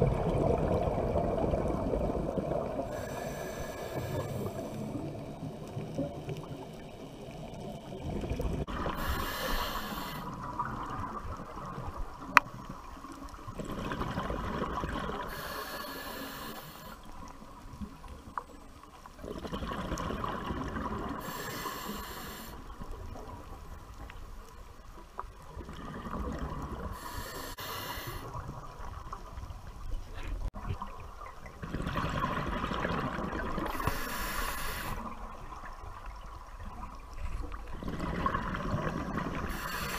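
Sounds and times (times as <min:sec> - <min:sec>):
low steady underwater rumble: 0:00.0 - 0:39.9.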